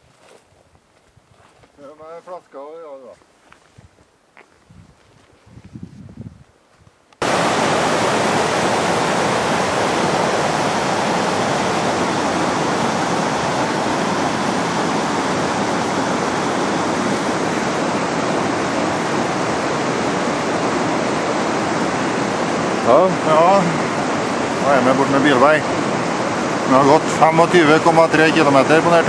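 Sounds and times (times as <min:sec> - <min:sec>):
stream rushing over rocks: 0:07.2 - 0:29.0.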